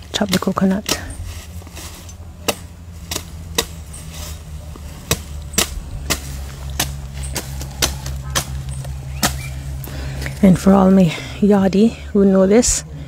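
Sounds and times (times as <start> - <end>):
machete chopping coconut: 2.4 - 4.1, 5.0 - 9.6.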